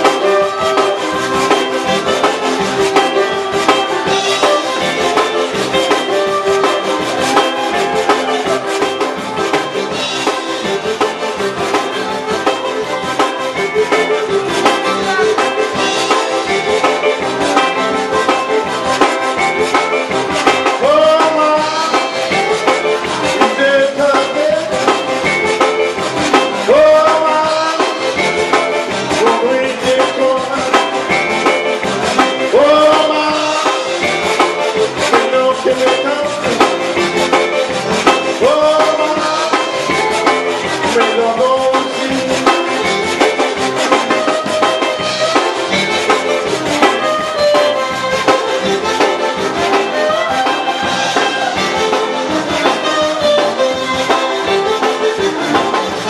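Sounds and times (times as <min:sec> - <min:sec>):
accordion: 0:00.0 - 0:56.0
drums: 0:00.0 - 0:56.0
fiddles: 0:00.0 - 0:56.0
live band playing: 0:00.0 - 0:56.0
man singing: 0:20.6 - 0:25.4, 0:26.4 - 0:43.3.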